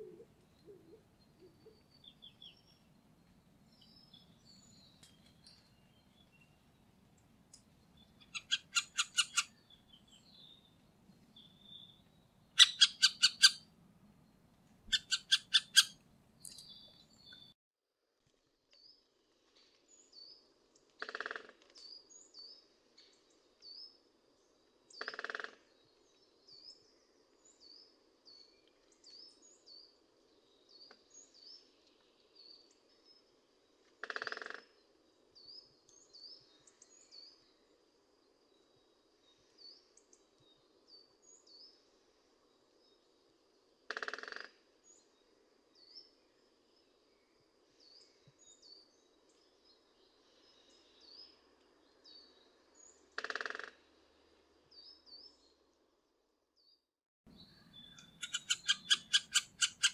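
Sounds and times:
birds chattering rapidly: 8.2 - 9.7, 12.6 - 13.6, 14.9 - 16.8, 57.6 - 59.9
high bird chirps: 8.2 - 10.6, 12.6 - 13.6, 14.9 - 17.5, 57.3 - 59.9
short harsh bird calls: 12.6 - 13.6, 57.8 - 59.9.

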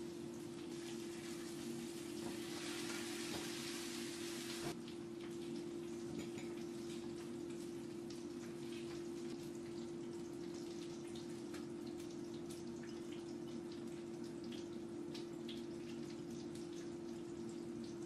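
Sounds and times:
wet clicks of food in sauce: 10.9 - 16.9.

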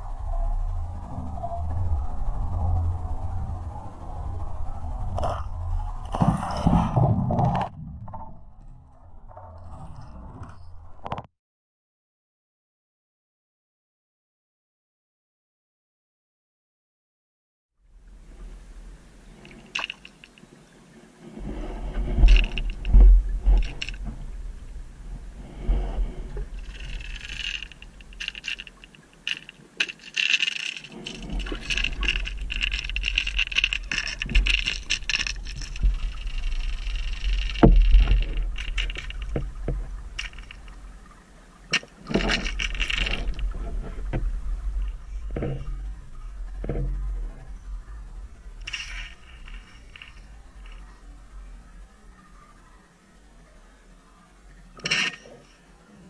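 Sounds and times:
underwater rumble: 0.0 - 11.3, 17.8 - 56.0
clicks and knocks: 26.4 - 40.8, 41.7 - 45.7.

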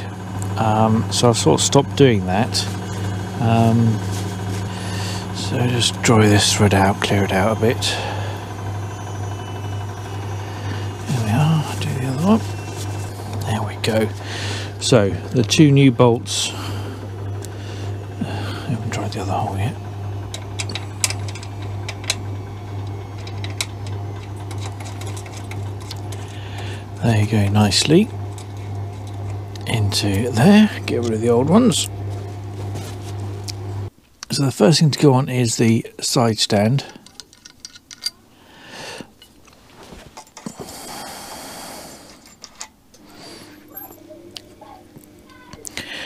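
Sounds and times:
steady low hum: 0.0 - 37.2, 37.9 - 46.0
metallic clicks of bolt turning: 36.9 - 38.2.

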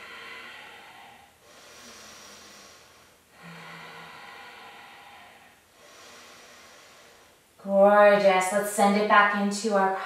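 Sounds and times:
woman breathing slowly: 0.0 - 7.6.

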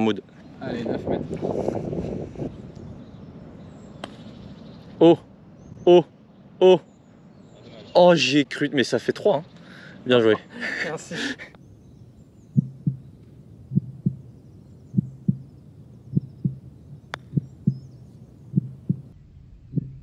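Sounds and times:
heartbeat thumps: 12.5 - 13.1, 13.7 - 14.3, 14.9 - 15.5, 16.1 - 16.7, 17.3 - 17.9, 18.5 - 19.1, 19.7 - 20.0.

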